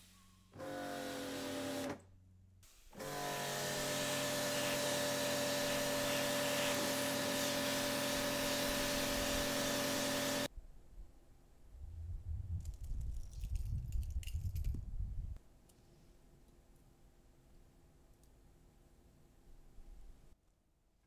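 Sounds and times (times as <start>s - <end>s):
pressure washer motor whine: 3.0s - 10.5s.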